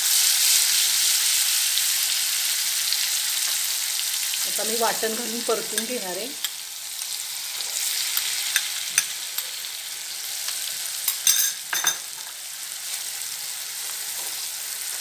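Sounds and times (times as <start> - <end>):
paste sizzling in hot oil: 0.0 - 15.0
spoon scraping and clinking pan: 11.1 - 12.4.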